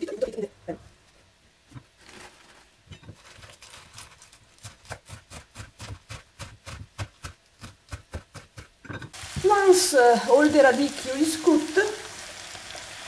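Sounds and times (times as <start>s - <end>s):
knife chopping on wooden board: 4.6s - 9.1s.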